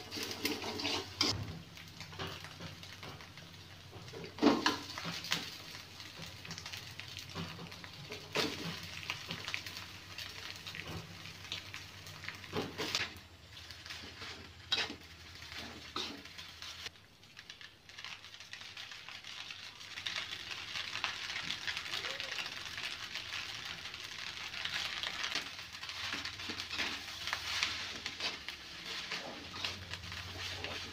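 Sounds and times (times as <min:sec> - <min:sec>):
metal spatula scraping pan: 0:00.0 - 0:01.4, 0:14.1 - 0:16.4
rice and egg sizzling in wok: 0:00.0 - 0:30.9.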